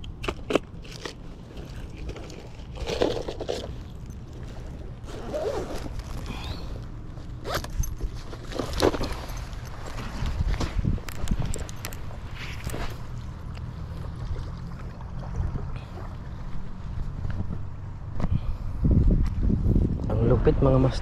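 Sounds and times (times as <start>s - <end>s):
steady low rumble: 0.0s - 21.0s
scraping and rustling: 0.8s - 13.2s.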